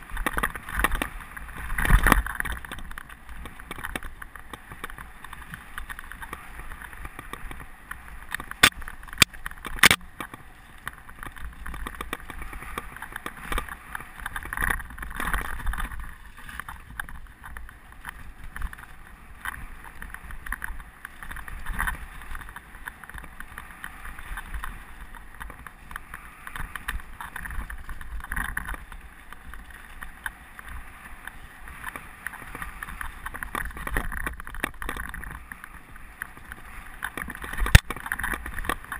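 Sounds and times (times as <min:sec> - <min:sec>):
bike knocking and rattling: 0:00.0 - 0:38.9
tyre noise on dirt: 0:00.0 - 0:38.9
sharp clicks: 0:08.3 - 0:10.4.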